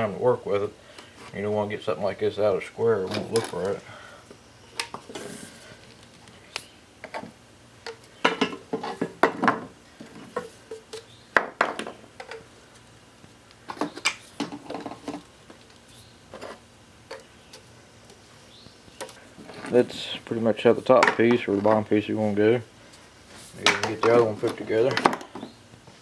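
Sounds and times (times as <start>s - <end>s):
pieces tapping on wooden workbench: 7.0s - 12.4s.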